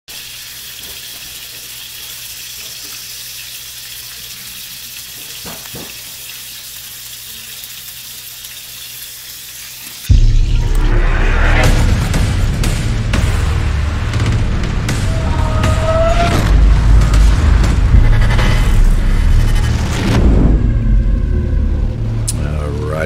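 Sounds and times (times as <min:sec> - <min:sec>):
meat and potatoes sizzling in skillet: 0:00.1 - 0:10.2
loud boom: 0:10.1 - 0:22.3
intro music: 0:10.1 - 0:23.0.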